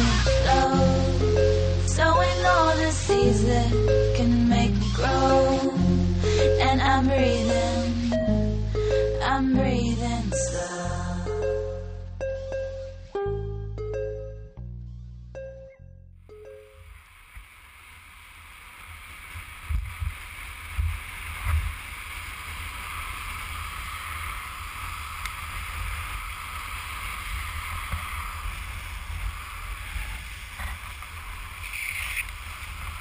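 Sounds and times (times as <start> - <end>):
skateboard wheels rolling on asphalt: 16.4 - 33.0
wind buffeting microphone: 19.1 - 33.0.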